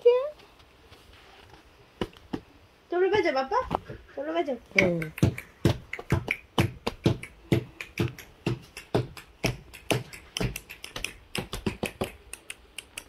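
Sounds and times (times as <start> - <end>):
hands drumming on plastic box: 4.8 - 12.3.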